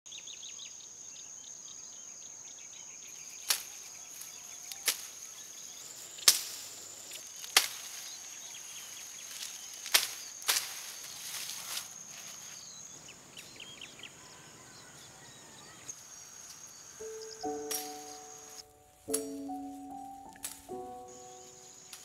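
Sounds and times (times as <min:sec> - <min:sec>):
bird chirps: 0:00.1 - 0:22.0
high insect buzz: 0:03.2 - 0:12.9, 0:15.9 - 0:22.0
knife snapping grass stalks: 0:03.4 - 0:05.2, 0:06.2 - 0:12.4, 0:17.4 - 0:21.1.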